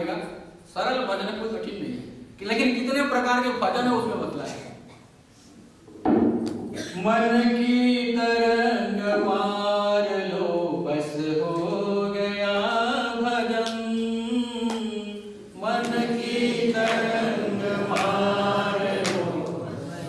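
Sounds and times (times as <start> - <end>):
group chanting in unison: 15.6 - 20.0.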